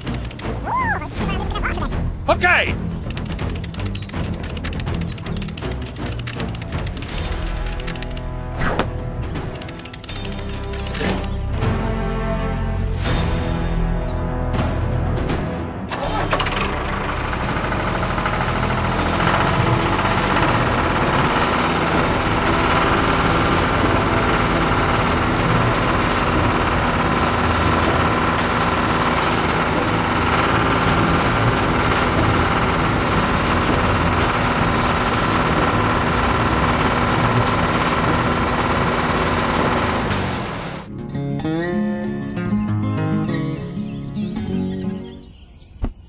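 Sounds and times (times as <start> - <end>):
tractor engine chugging: 0.0 - 8.3, 15.8 - 40.9.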